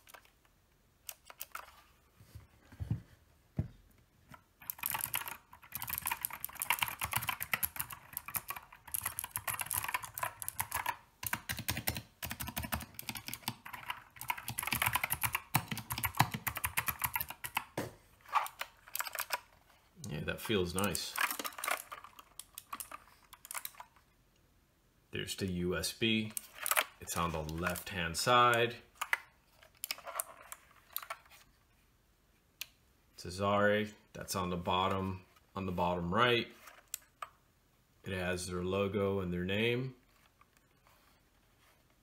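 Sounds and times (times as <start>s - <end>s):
clicky mechanical keyboard typing: 4.6s - 17.8s, 18.4s - 19.5s, 20.8s - 23.9s.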